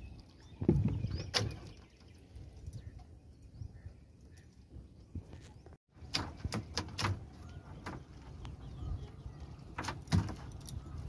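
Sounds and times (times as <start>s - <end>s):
knocks and clacks on wooden boat: 6.0s - 10.8s.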